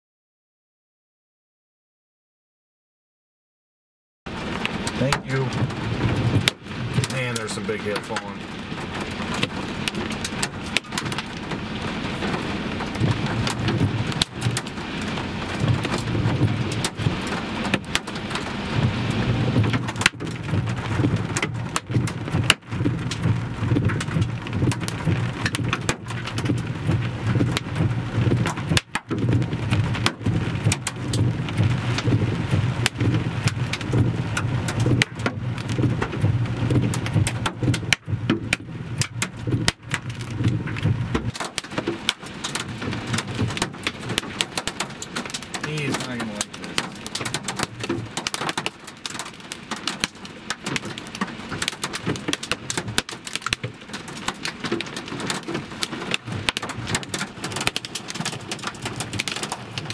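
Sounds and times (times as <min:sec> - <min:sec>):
hailstone impacts: 0:04.3 - 0:59.9
rain pattering: 0:04.3 - 0:59.9.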